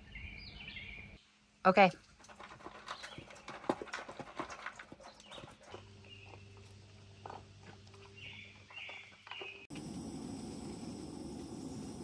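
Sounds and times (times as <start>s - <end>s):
bird chirps: 0.0s - 1.2s, 5.0s - 9.7s
dogs crunching dry food: 2.0s - 8.9s.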